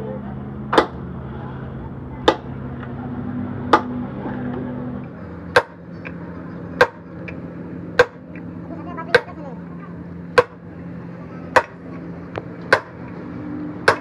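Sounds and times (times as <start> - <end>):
steady low hum: 0.0 - 14.0
hammer striking steel: 5.5 - 5.8, 6.8 - 7.1, 8.0 - 8.2, 10.4 - 10.6, 11.5 - 11.8, 12.7 - 13.0.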